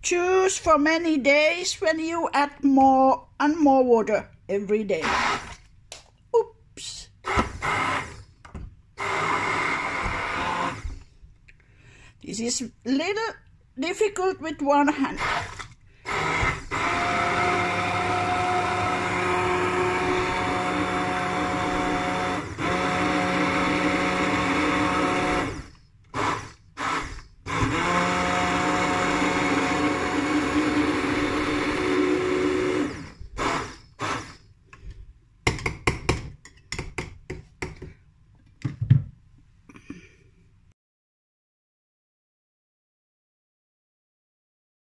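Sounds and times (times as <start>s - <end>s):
immersion blender whining: 5.0s - 5.6s, 7.2s - 8.4s, 9.0s - 11.1s, 15.1s - 34.5s.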